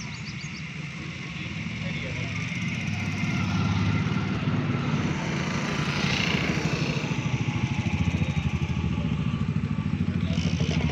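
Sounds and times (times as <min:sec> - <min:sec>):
engine chugging steadily: 0:00.0 - 0:10.9.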